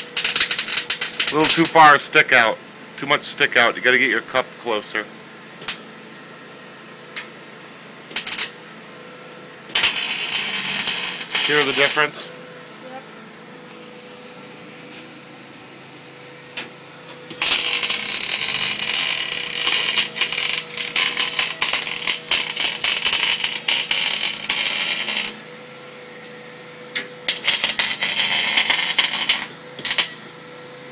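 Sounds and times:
welding arc crackling: 0.0s - 2.4s, 8.1s - 8.6s, 9.7s - 12.3s, 17.3s - 25.4s, 27.3s - 30.2s.

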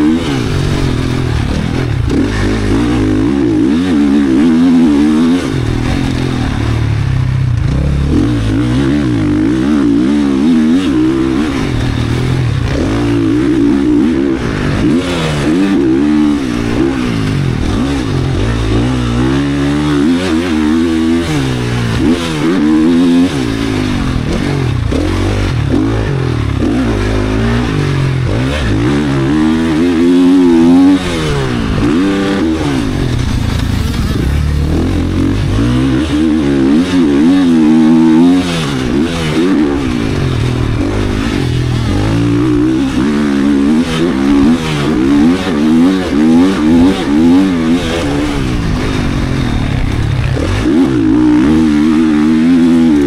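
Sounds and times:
motocross bike engine revving: 0.0s - 53.0s.

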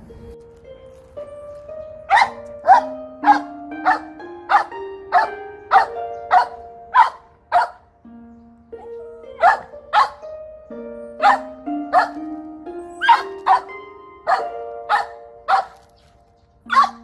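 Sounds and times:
held synth notes: 0.0s - 17.0s
dog barks beat: 2.1s - 7.8s, 8.9s - 10.3s, 11.2s - 12.2s, 13.0s - 15.8s, 16.7s - 17.0s.

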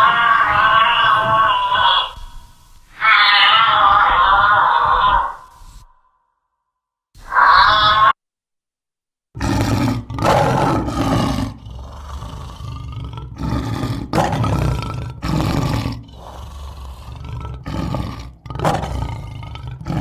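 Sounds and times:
lion roaring: 3.0s - 5.5s, 9.4s - 20.0s.

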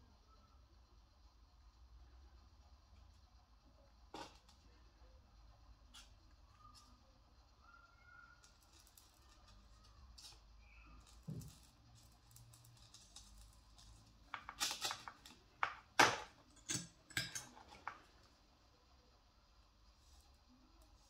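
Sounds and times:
faint room noise: 0.0s - 21.0s
sharp clicks and light scrapes: 5.9s - 7.0s, 8.4s - 18.3s.

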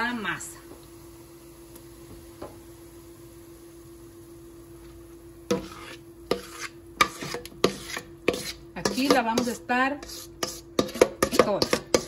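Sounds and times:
faint sizzling in hot oil: 0.0s - 12.0s
low steady hum: 0.0s - 12.0s
spoon scraping pot: 5.5s - 12.0s.

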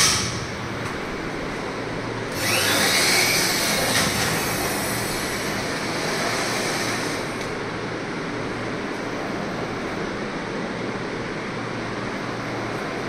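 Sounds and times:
machine running with hiss: 0.0s - 9.8s.

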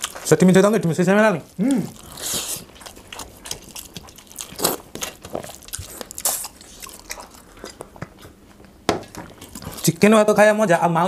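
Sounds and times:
chewing and mouth smacks: 0.0s - 0.3s, 1.5s - 10.0s
fingers mixing food on plates: 0.0s - 10.2s.

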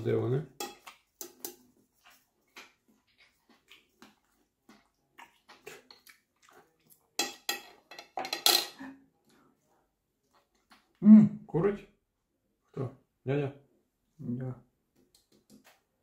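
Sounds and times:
cutlery clinking on a plate: 0.6s - 1.6s, 7.2s - 8.8s.

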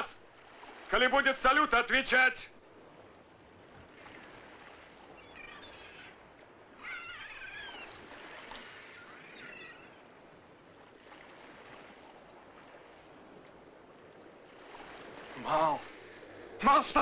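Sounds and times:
faint hiss of wind and water: 0.0s - 17.0s
gulls calling: 4.3s - 10.3s, 14.6s - 17.0s.

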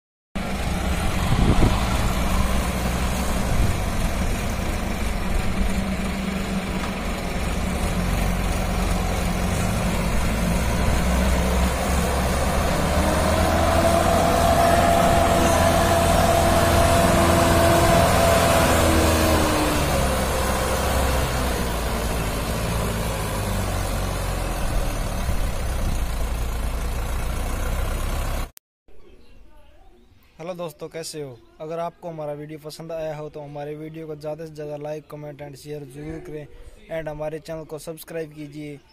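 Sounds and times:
tractor diesel engine under load: 0.4s - 28.6s.

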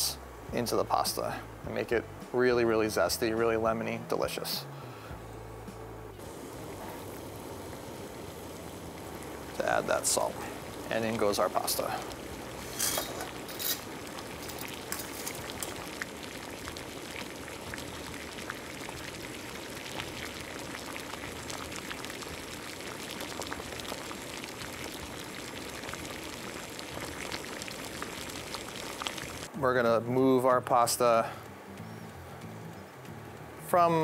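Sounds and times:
water boiling and bubbling: 6.2s - 29.5s.

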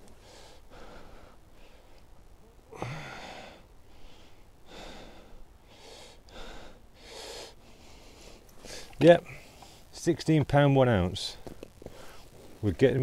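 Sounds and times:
man breathing hard: 0.1s - 2.0s, 2.7s - 9.9s, 11.8s - 12.4s.

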